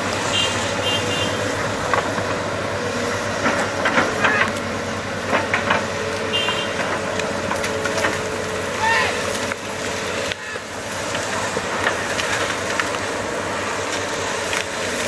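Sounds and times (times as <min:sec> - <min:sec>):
excavator engine running: 0:00.0 - 0:15.0
sharp cracks and clicks: 0:11.8 - 0:13.1.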